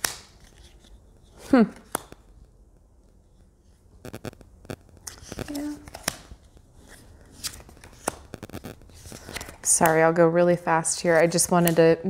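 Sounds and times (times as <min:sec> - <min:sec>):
cards sliding and clicking: 0:00.0 - 0:02.2, 0:05.0 - 0:10.0.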